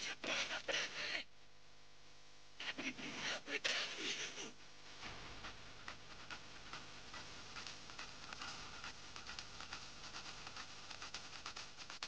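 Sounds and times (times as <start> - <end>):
steady hiss: 0.0 - 1.3, 2.6 - 12.0
faint irregular clicking: 5.8 - 12.0.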